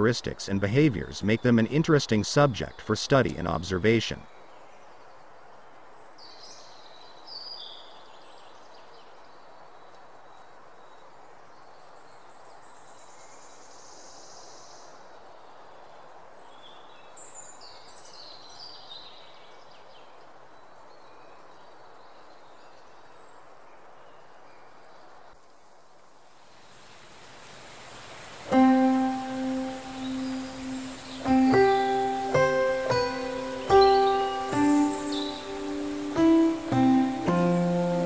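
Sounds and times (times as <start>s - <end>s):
outdoor background noise: 0.0s - 38.0s
high hiss: 26.0s - 38.0s
bird chirps: 28.5s - 38.0s.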